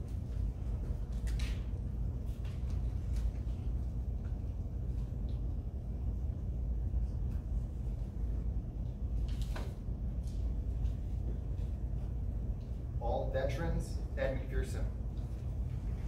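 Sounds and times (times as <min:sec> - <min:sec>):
faint clicks and rustles: 0:00.0 - 0:05.8
low indoor rumble: 0:00.0 - 0:16.0.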